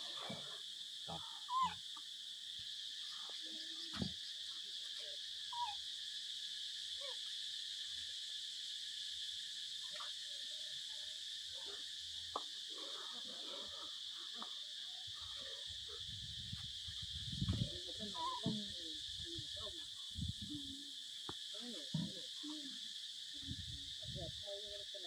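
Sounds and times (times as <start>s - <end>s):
high buzz of insects: 0.0s - 25.0s
monkeys giving squeaky calls: 1.5s - 1.8s.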